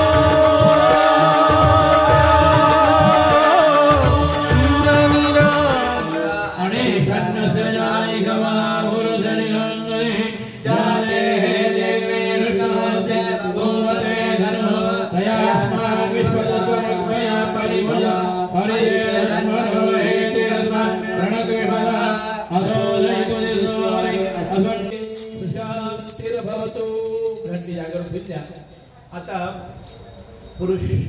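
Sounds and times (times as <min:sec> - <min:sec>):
drumming: 0:00.0 - 0:06.1
devotional singing: 0:00.0 - 0:27.6.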